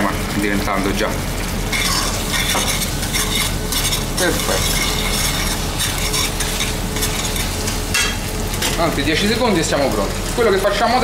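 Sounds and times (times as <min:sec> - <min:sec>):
steady sizzle: 0:00.0 - 0:11.0
metal utensil scraping a pan: 0:01.7 - 0:08.8.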